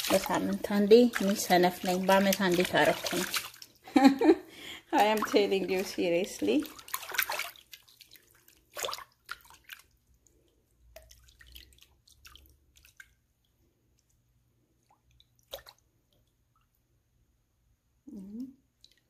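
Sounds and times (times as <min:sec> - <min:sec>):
feet splashing in water: 0:00.0 - 0:03.8, 0:04.9 - 0:10.0, 0:10.9 - 0:13.2, 0:15.4 - 0:15.8.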